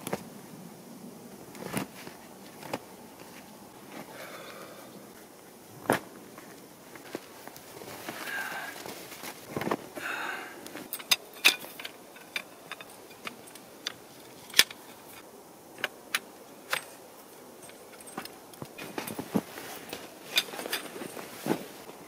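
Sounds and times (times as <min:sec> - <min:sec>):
metal tent poles clinking: 0:10.7 - 0:15.2, 0:15.8 - 0:22.0.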